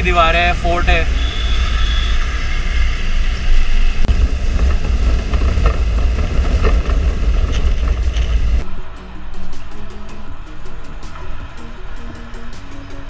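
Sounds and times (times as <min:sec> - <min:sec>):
motorcycle engine running: 0:00.0 - 0:08.9
wind rush on microphone: 0:00.0 - 0:12.5.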